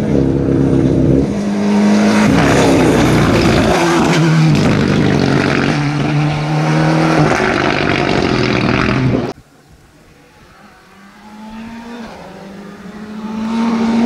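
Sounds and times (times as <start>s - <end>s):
rally car engine at high revs: 0.0s - 9.4s, 10.2s - 14.0s
road noise: 0.0s - 14.0s.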